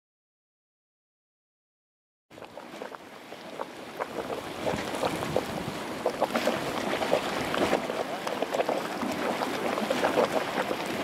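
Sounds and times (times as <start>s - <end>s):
hot water splashing: 2.4s - 11.0s.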